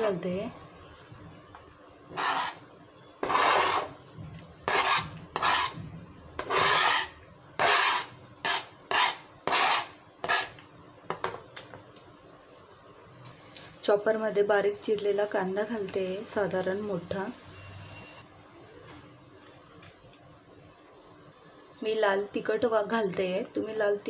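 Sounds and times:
knife scraping cutting board: 2.1 - 2.6, 3.2 - 4.0, 4.7 - 5.8, 6.4 - 10.6.

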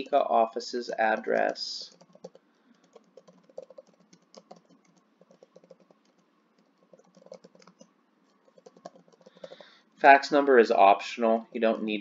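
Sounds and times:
keyboard typing: 1.1 - 9.8.

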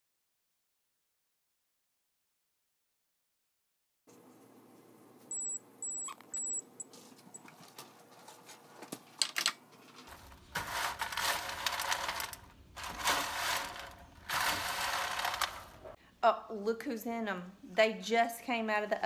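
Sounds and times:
oven timer beeping: 5.3 - 6.9
snacks rattling in metal pan: 10.1 - 16.0.

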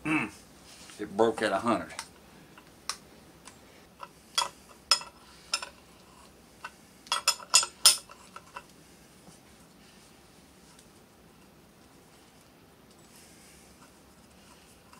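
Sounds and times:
metal tools clinking: 7.1 - 8.6.

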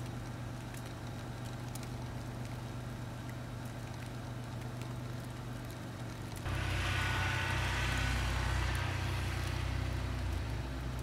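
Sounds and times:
steady low hum: 0.0 - 11.0
car passing on slush: 6.4 - 11.0.

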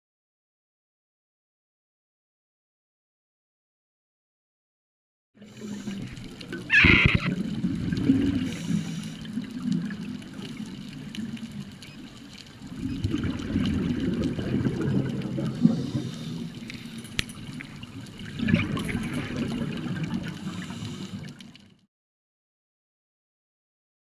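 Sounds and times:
regulator bubbles underwater: 5.4 - 21.8.

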